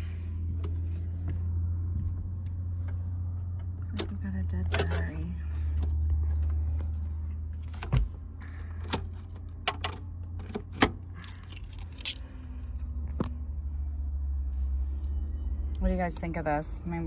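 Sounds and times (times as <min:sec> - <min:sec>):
keys jangling: 0:10.7 - 0:12.3.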